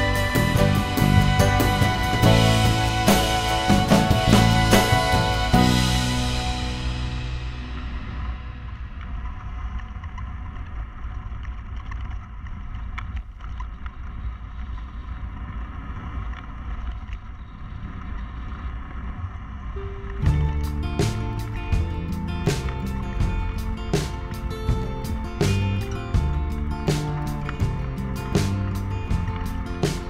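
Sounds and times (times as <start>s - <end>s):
music with drums: 0.0s - 8.3s, 20.2s - 30.0s.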